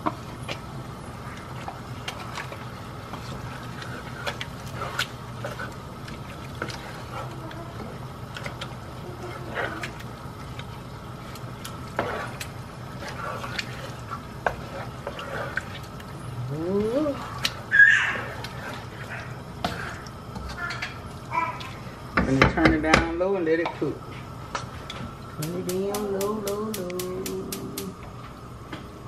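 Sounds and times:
steady low hum: 0.0 - 29.0
spoon scraping a pot: 11.9 - 15.9.

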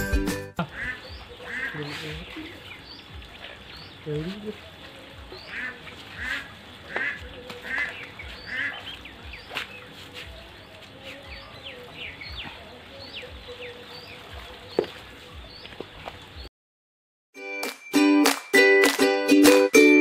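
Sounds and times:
ducks quacking: 0.6 - 2.6, 5.2 - 9.6.

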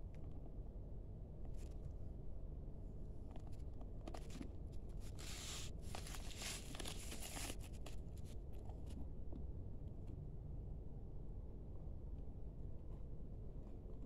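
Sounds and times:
plastic wrapping crinkling: 5.1 - 7.9.

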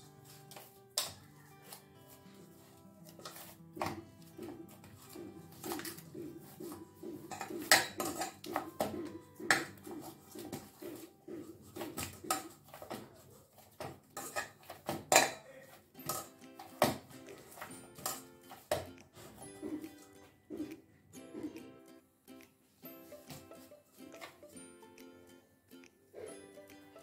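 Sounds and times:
dough kneaded by hand: 0.0 - 21.8
metal bowl knocking and clanking: 5.6 - 11.0, 13.8 - 15.4, 16.0 - 17.0, 18.0 - 18.8.

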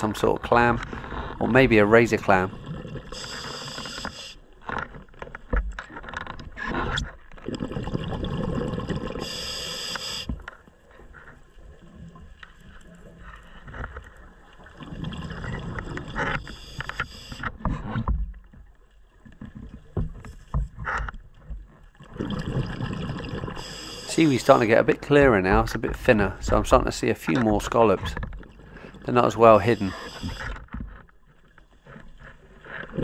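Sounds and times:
underwater regulator bubbling: 1.2 - 4.4, 6.6 - 10.4, 22.1 - 30.6
regulator hiss: 3.1 - 4.4, 9.2 - 10.3, 23.6 - 25.0, 29.6 - 30.4.

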